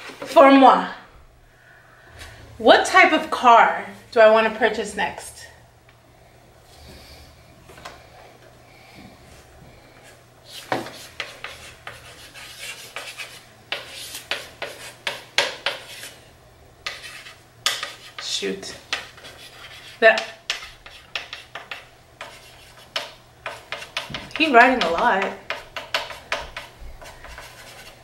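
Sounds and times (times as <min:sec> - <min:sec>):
chalk scratching on chalkboard: 0:10.5 - 0:16.2, 0:16.8 - 0:18.3, 0:18.9 - 0:28.0
chalk squeaks: 0:25.8 - 0:28.0.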